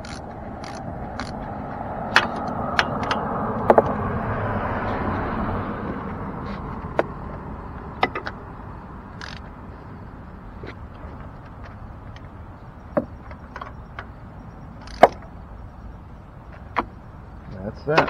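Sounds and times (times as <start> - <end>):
ratchet wrench clicking: 0.0 - 1.4, 9.2 - 9.5
car passing by: 0.6 - 7.9.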